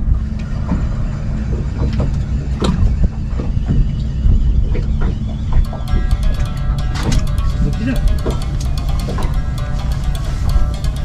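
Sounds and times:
boat engine rumbling: 0.0s - 11.0s
knocks and clicks: 4.7s - 11.0s.

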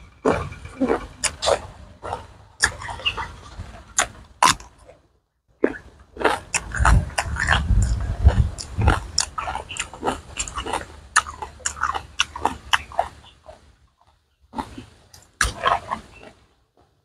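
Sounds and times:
chewing crisp raw vegetables: 0.0s - 5.0s, 5.6s - 16.5s
low rumble: 6.5s - 12.3s.

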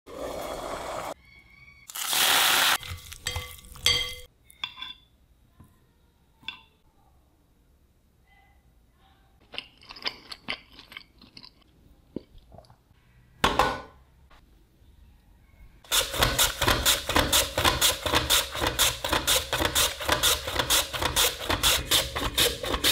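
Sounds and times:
dishware clinking: 3.2s - 5.1s.

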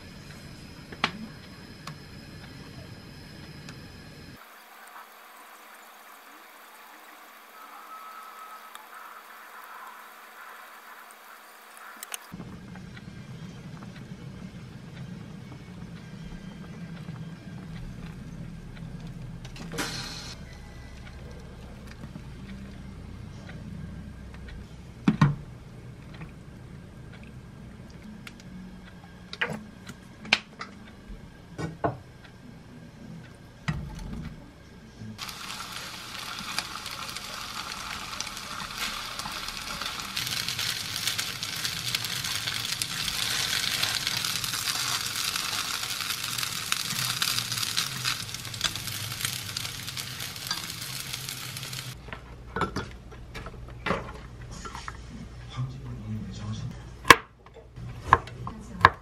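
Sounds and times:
gnocchi sizzling in frying pan: 4.4s - 12.4s, 35.2s - 52.0s.

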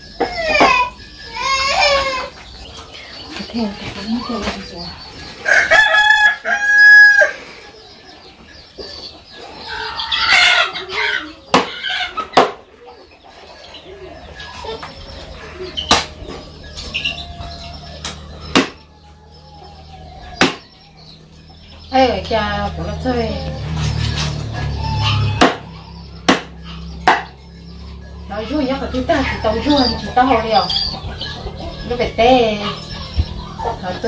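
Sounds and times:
rooster crowing: 5.4s - 7.4s
sharp knocks: 18.0s - 18.8s, 20.4s - 20.7s, 25.4s - 27.4s.

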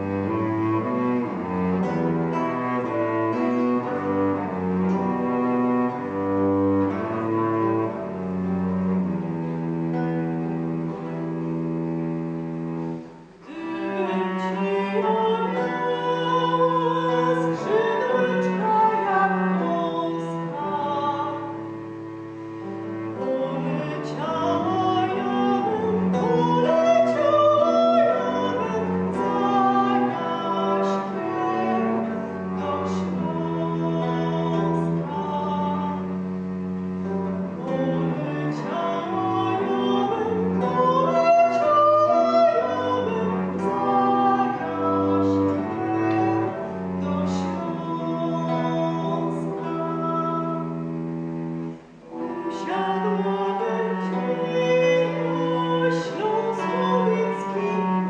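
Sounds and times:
plucked lute: 0.0s - 51.8s
bowed cello: 0.0s - 58.0s
woman singing: 13.4s - 21.8s, 23.0s - 36.2s, 37.6s - 50.8s, 52.2s - 58.0s.

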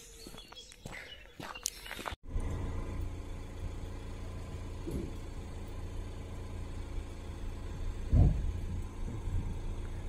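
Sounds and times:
low engine rumble: 2.2s - 10.0s.

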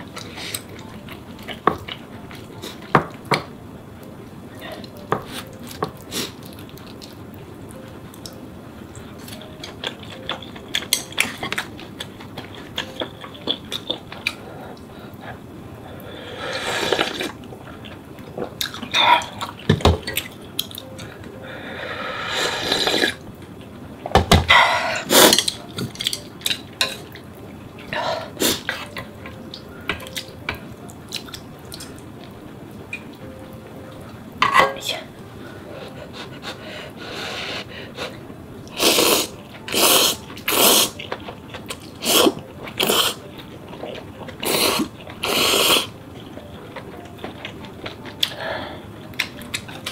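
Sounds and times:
slurping noodles: 16.4s - 17.3s, 22.2s - 23.2s, 38.8s - 41.0s, 42.0s - 43.2s, 44.4s - 45.9s.

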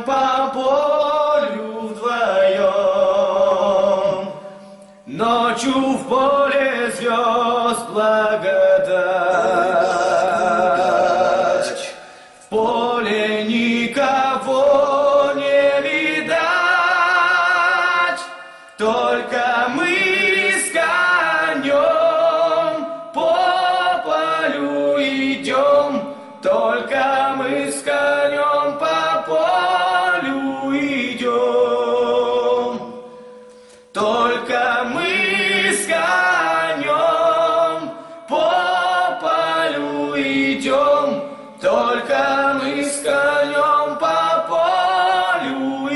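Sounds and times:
men singing in harmony: 5.1s - 33.1s, 33.8s - 45.9s.

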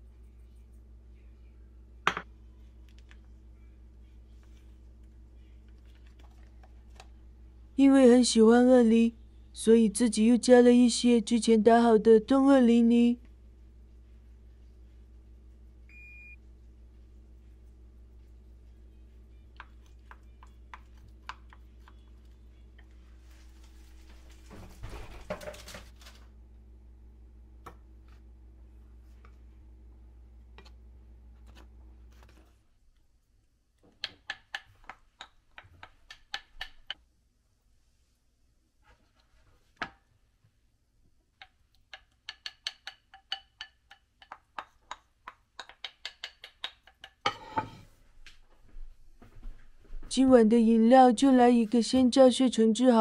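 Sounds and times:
low steady hum: 0.0s - 34.0s
utensil clicks and taps: 19.5s - 22.1s, 33.8s - 37.0s, 41.4s - 47.3s.

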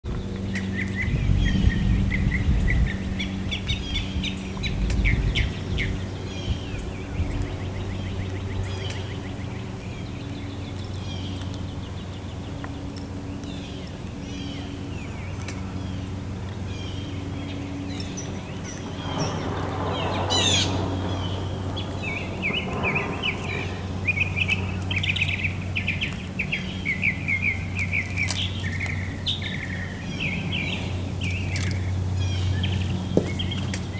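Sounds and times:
small birds chirping: 0.0s - 33.9s
low rumble: 0.1s - 33.9s
steady low hum: 0.1s - 33.9s
broad rushing sound: 18.3s - 25.9s.

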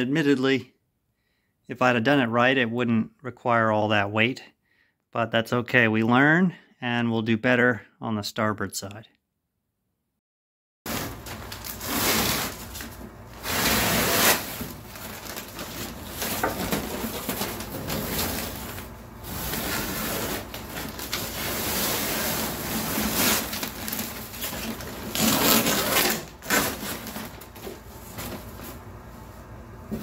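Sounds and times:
plastic sheeting crackling: 10.9s - 28.8s.

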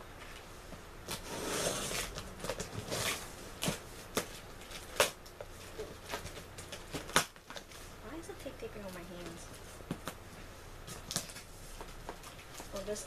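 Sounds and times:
tape scraping on cardboard: 1.1s - 7.7s.

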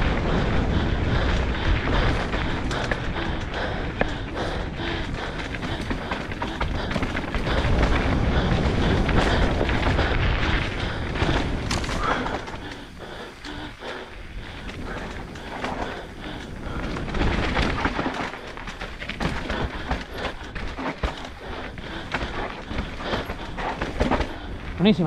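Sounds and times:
thumps and knocks over rocks: 22.0s - 24.5s.

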